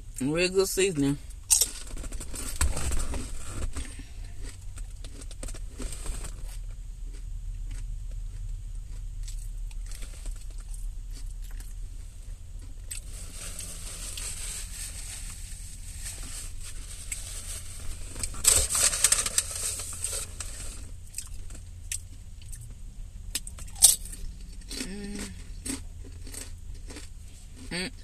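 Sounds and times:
steady low hum: 0.0 - 28.0
paper bag rustling and crinkling: 13.0 - 20.9.

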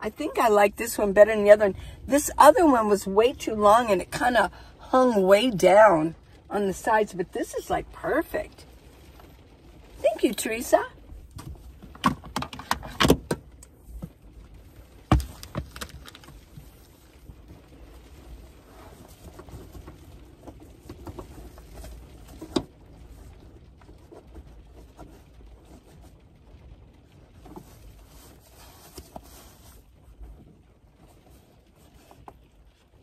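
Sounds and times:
faint low rumble: 0.0 - 33.0
fabric rustling: 7.9 - 26.2, 27.3 - 33.0
knocks and thumps on plastic drawers: 15.1 - 16.2.

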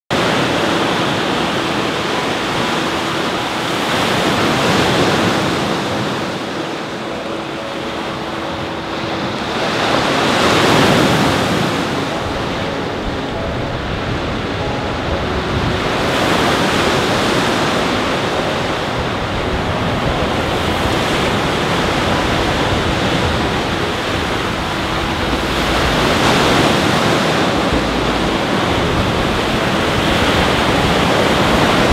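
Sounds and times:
waves washing over rocky shore: 15.8 - 31.9.

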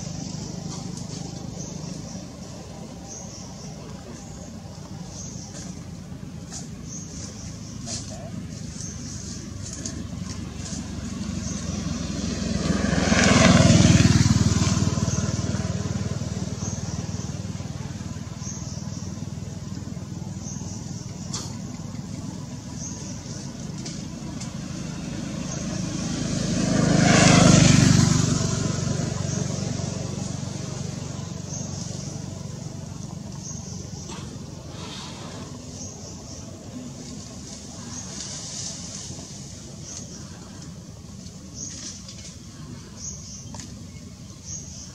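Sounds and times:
vehicle engines passing: 0.0 - 44.9.

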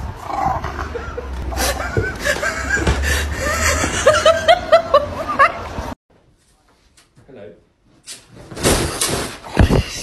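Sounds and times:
person laughing: 0.8 - 5.7.

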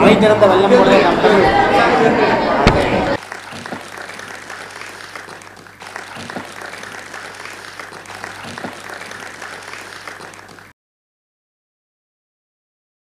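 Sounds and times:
audience applauding: 2.6 - 10.7.

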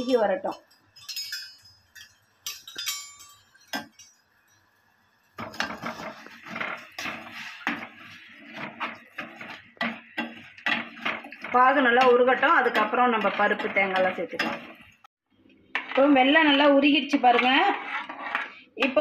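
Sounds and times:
metal spoon stirring in saucepan: 0.1 - 15.1, 15.7 - 19.0.

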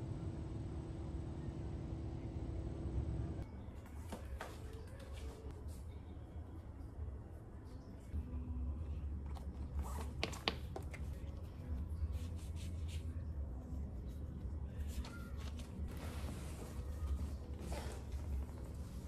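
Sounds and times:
steady low hum: 0.0 - 3.8.

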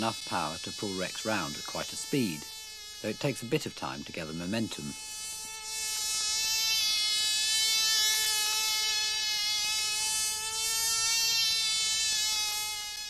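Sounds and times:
model aeroplane engine buzzing: 0.0 - 13.0.

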